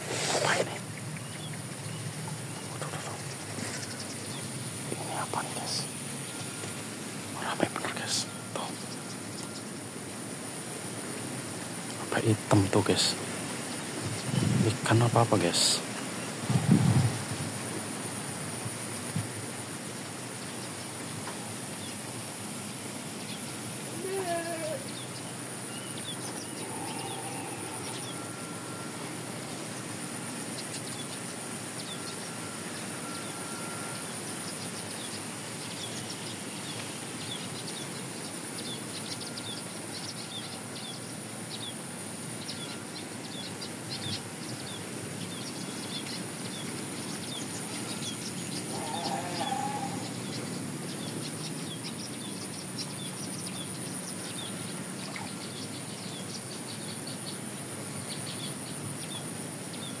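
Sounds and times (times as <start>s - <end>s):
birds chirping: 0.0s - 60.0s
steady hiss: 0.0s - 60.0s
low bird call: 23.4s - 29.8s, 47.3s - 51.1s.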